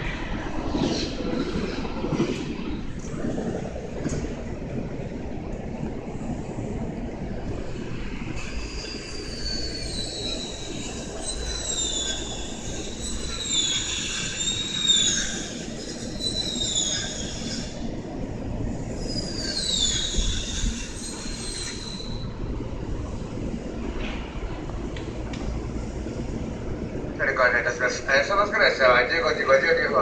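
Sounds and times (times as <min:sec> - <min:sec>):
train wheels squealing on rails: 0:00.0 - 0:03.5, 0:07.7 - 0:22.8
low train rumble: 0:00.0 - 0:30.0.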